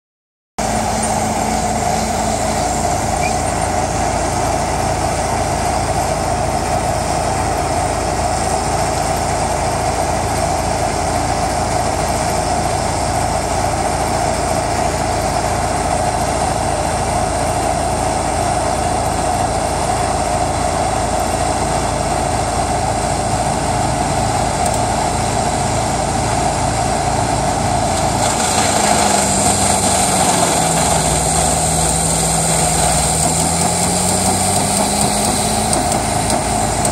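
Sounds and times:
wood chipper engine running: 0.6 - 36.9
chipper chewing wood: 28.0 - 36.9.

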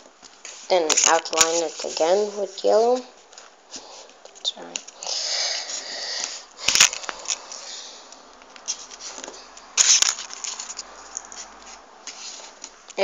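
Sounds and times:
paper rustling and crinkling: 0.3 - 3.9, 8.6 - 12.8.

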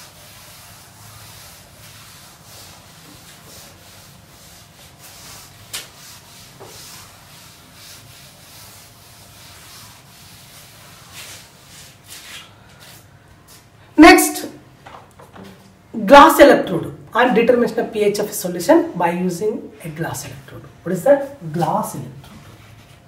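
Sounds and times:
duster rubbing blackboard: 0.0 - 13.2.

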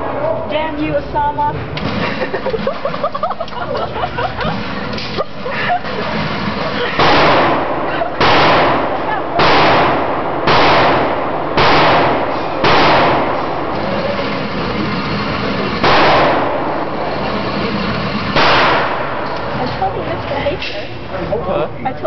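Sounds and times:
pistol shots in a concrete room: 6.2 - 19.6.

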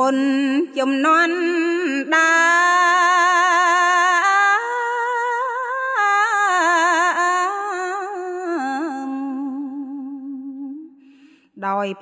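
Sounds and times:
woman chanting with vibrato: 11.6 - 12.0.

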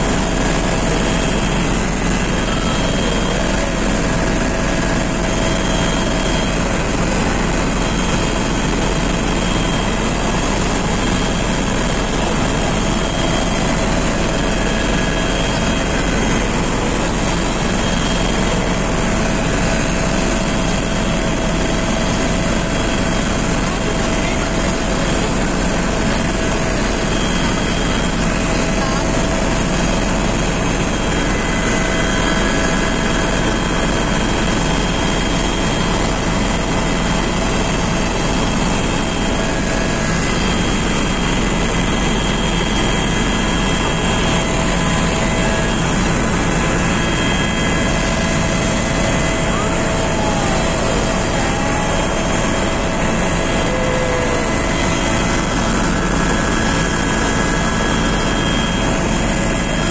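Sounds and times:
faint steady whine: 0.0 - 59.9
helicopter engine and rotor drone: 0.0 - 59.9.

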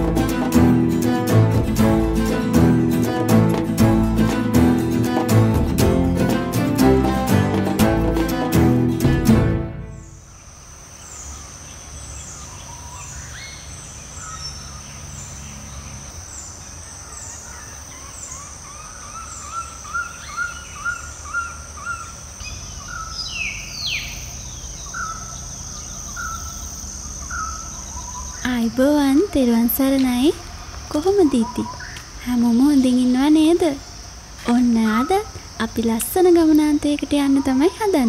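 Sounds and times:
wild birds calling: 9.9 - 38.0.

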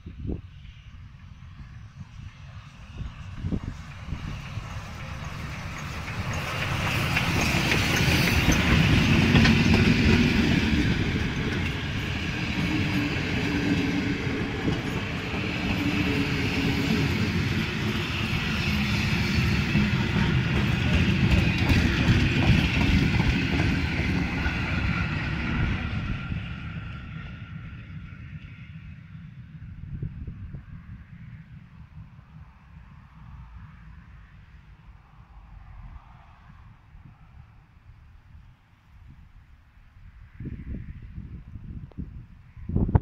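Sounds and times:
steam locomotive passing: 0.0 - 41.8
steel wheels clattering on track: 3.8 - 25.4.

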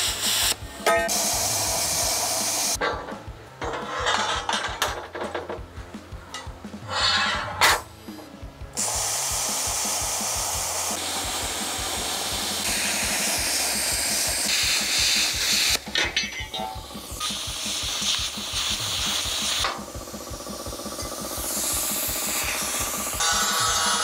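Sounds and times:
gas cutting torch hissing: 0.0 - 2.8, 8.8 - 15.8, 16.5 - 24.0
steel plate clattering on bench: 2.8 - 5.6.

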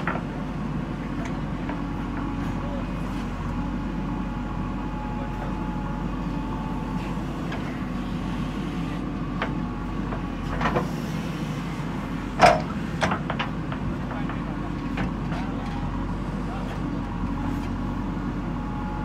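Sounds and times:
diesel engine running under load: 0.0 - 19.0
metal knocks and clanks: 12.4 - 15.5.

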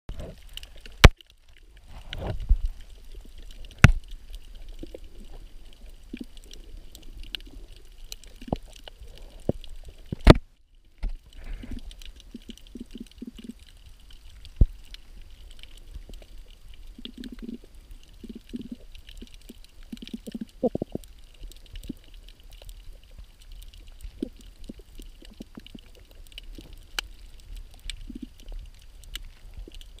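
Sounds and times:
muffled underwater rumble: 0.1 - 30.0.

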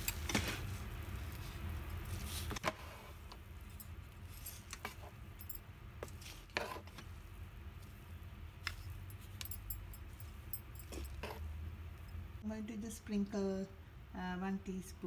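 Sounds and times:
wooden spatula scraping pan: 6.0 - 7.1.

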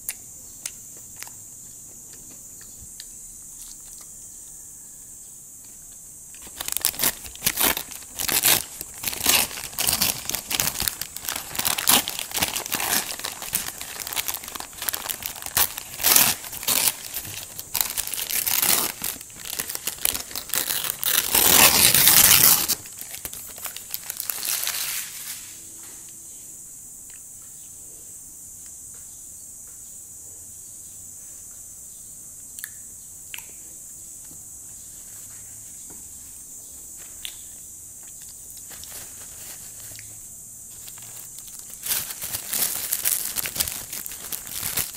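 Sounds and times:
paper bag shaken: 6.4 - 22.8, 40.9 - 44.9
paper bag crinkling and tearing: 6.4 - 25.5, 40.8 - 44.9.

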